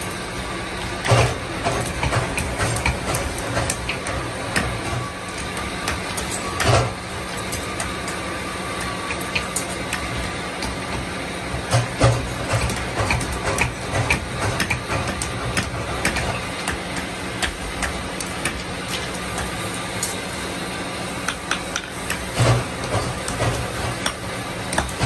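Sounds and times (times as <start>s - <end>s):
hammer tapping metal: 21.2s - 25.0s.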